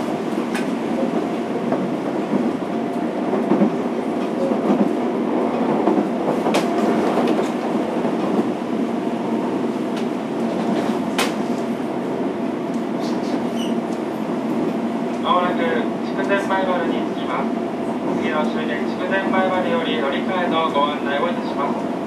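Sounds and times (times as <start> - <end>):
train wheels rumbling on rail: 0.0 - 22.0.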